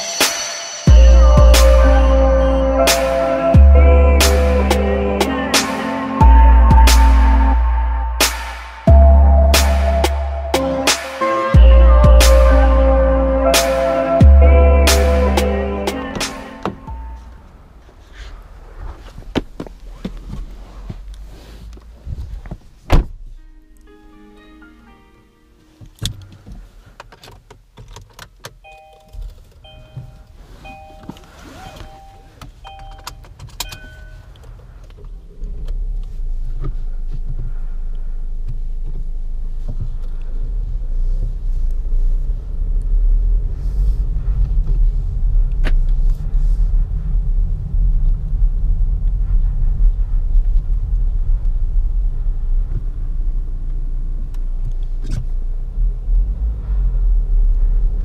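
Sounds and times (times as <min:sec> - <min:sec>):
dashboard warning chime: 0:00.0 - 0:05.6, 0:28.6 - 0:34.6
engine and road rumble: 0:00.9 - 0:24.1, 0:25.6 - 0:58.0
diesel engine starting: 0:29.4 - 0:58.0.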